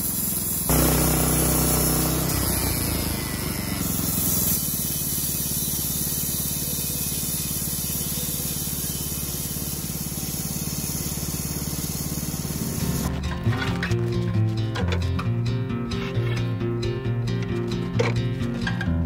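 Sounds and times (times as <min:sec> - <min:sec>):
saw blade hissing through wood: 0:00.0 - 0:13.1
sawmill engine running: 0:00.0 - 0:14.5.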